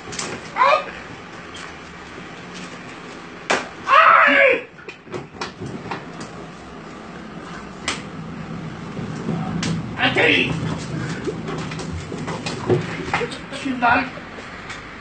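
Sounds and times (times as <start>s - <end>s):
person crying out: 0.5s - 1.0s
hands slapping a head: 3.5s - 3.7s, 7.8s - 8.1s.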